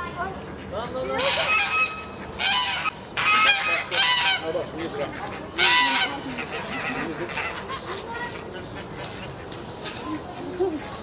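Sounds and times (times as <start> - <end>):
waterfowl honking: 1.0 - 7.8.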